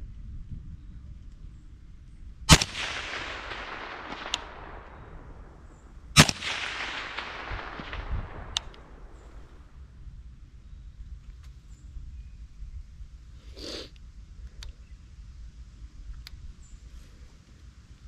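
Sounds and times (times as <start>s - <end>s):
rifle shots with echo: 2.5s - 9.9s
faint sharp tick: 8.4s - 8.9s, 13.9s - 14.8s, 16.1s - 16.4s.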